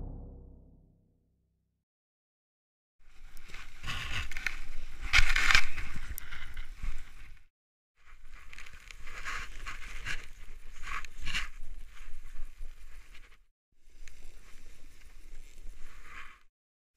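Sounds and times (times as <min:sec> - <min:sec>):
low rumble: 0:00.0 - 0:01.0
camera handling rustling and scraping: 0:03.3 - 0:07.4, 0:08.2 - 0:12.3.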